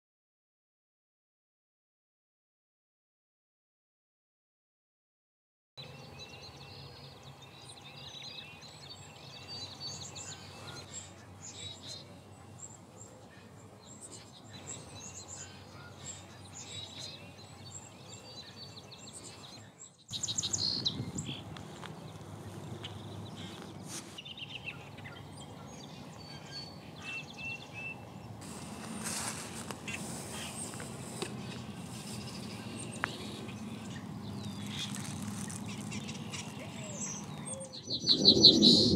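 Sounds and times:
small birds chirping: 5.8 - 38.9
steady low rumble: 20.2 - 27.0, 27.6 - 38.9.

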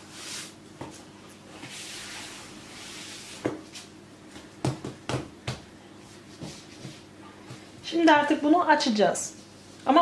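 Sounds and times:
hands knocking dough down: 4.4 - 5.7.

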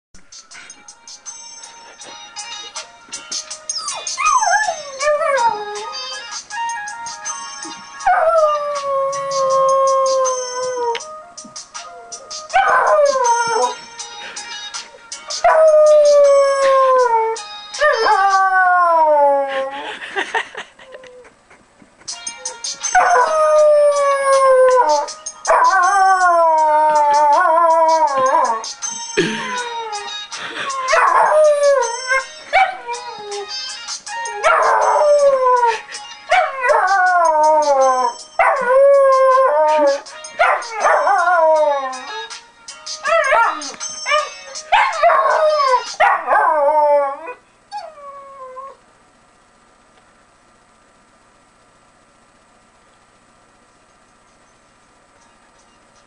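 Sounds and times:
puppy howling: 3.8 - 6.2.

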